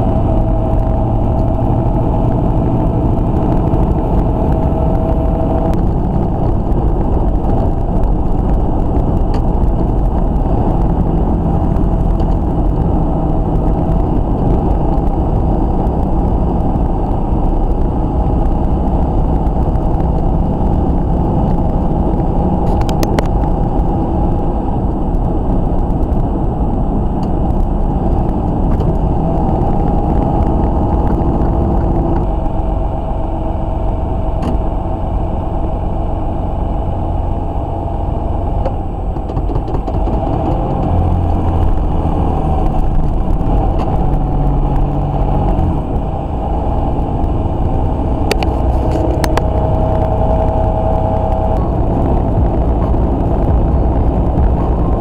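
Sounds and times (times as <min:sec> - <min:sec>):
steady hum: 0:00.0 - 0:55.0
truck engine and road noise: 0:00.0 - 0:55.0.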